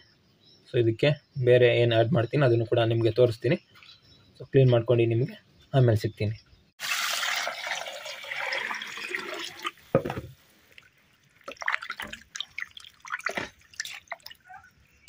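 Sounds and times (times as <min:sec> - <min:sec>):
water pouring into metal pot: 0:06.8 - 0:14.5
knock: 0:10.0 - 0:10.3.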